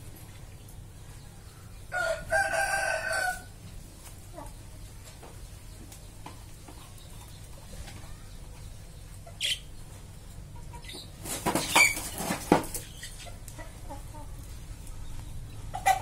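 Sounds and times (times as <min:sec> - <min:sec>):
budgerigar high chirp: 0:09.2 - 0:09.7
wings flapping: 0:11.2 - 0:13.1.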